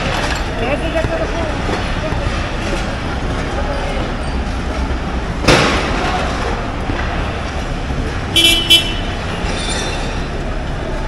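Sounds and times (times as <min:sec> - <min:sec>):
car horn toots: 0:08.3 - 0:09.2.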